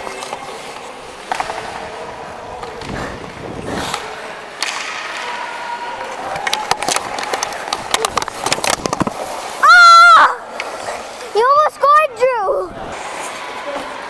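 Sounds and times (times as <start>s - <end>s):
hockey stick tapping ice and puck: 1.2s - 1.8s, 4.6s - 5.3s, 6.4s - 9.3s
skates scraping over ice: 6.0s - 9.6s.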